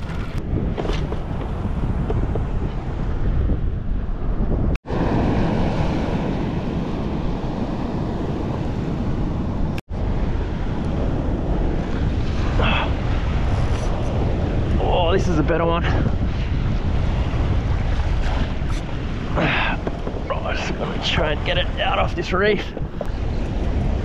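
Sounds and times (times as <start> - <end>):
wind buffeting microphone: 0.0 - 24.0
waves washing around kayak: 4.8 - 24.0.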